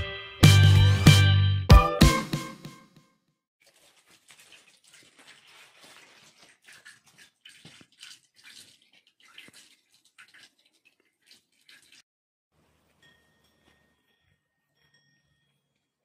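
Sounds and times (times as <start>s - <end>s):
water trickling into basin: 3.6s - 12.1s.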